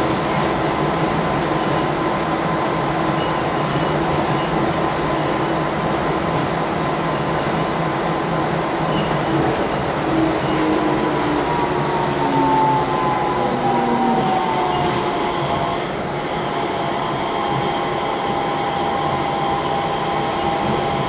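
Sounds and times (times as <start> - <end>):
people-mover train running: 0.0 - 21.0.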